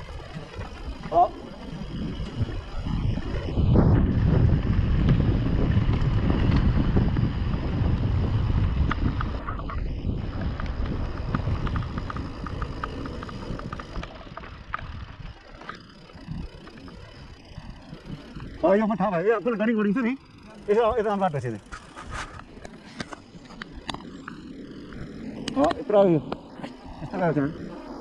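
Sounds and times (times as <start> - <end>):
wind rumbling on microphone: 0.0 - 28.0
quick even ticks from bike: 8.5 - 18.8.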